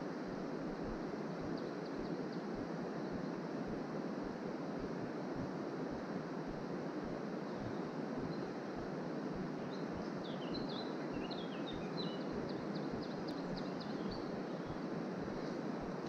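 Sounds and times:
songbird chirping: 9.6s - 15.6s.

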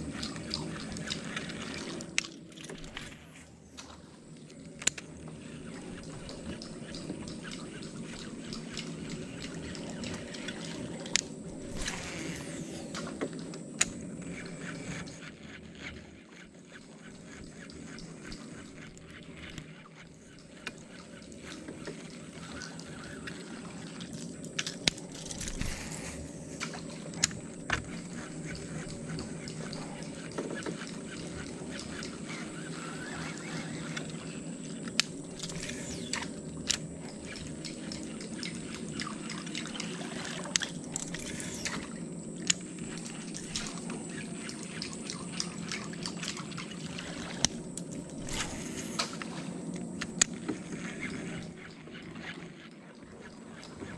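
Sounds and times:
steady low hum: 0.0s - 53.9s
water lapping around boat hull: 0.0s - 53.9s
thin high whine: 7.4s - 15.3s, 19.4s - 53.9s.

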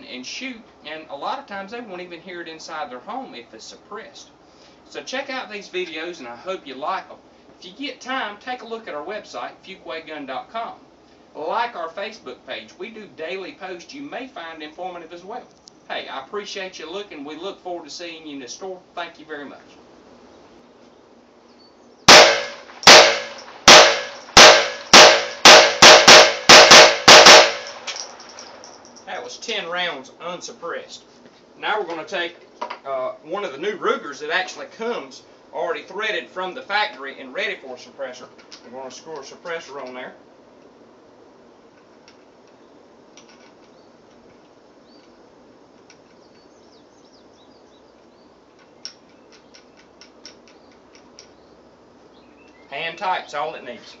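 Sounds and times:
faint bird chirps: 21.4s - 22.1s
handgun shots: 22.1s - 28.6s.

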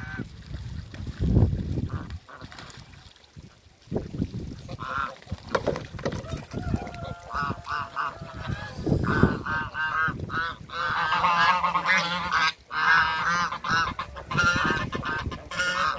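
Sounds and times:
geese honking: 6.2s - 15.9s.

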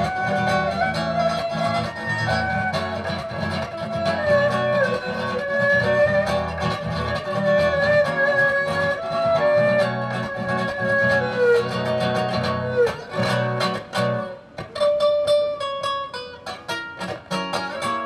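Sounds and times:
erhu sliding melody: 0.0s - 15.6s
acoustic guitar chords: 0.0s - 18.0s.

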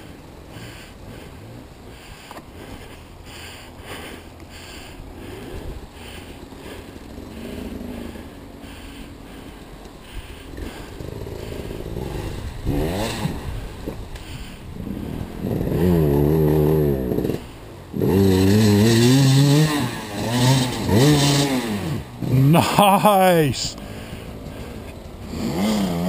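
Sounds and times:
dirt bike engine revving: 10.5s - 13.7s, 14.9s - 22.5s, 25.2s - 26.0s.

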